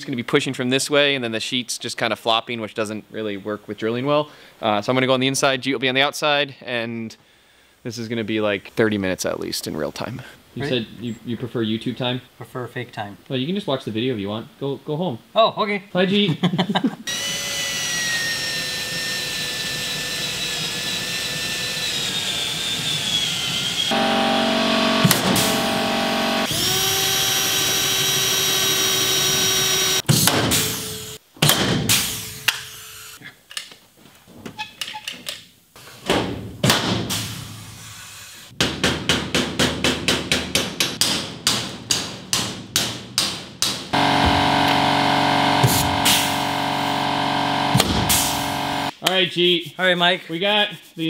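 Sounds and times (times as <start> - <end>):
cordless drill whining: 17.1 - 30.0, 44.0 - 48.9.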